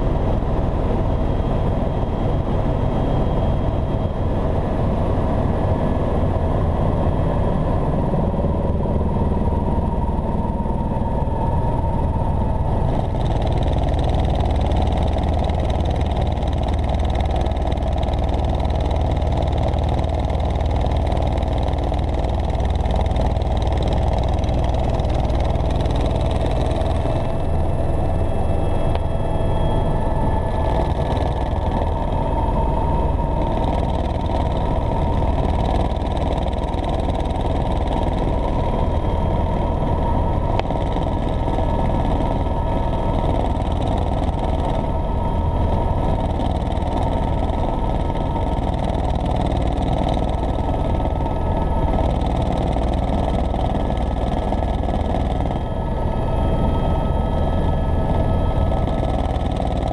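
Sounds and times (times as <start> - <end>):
helicopter engine and rotor drone: 0.0 - 59.9.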